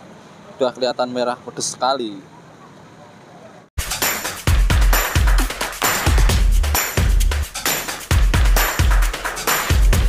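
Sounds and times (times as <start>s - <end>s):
electronic music with heavy bass beat: 3.8s - 10.0s.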